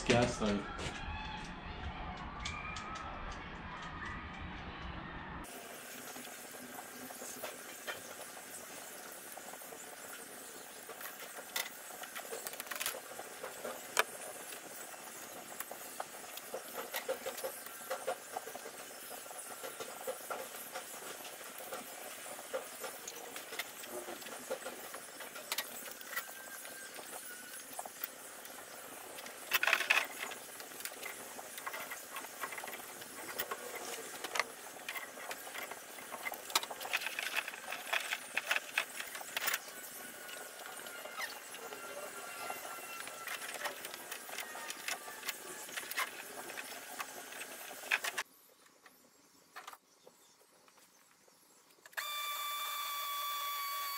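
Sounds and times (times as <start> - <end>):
steady hiss: 5.5 - 48.6.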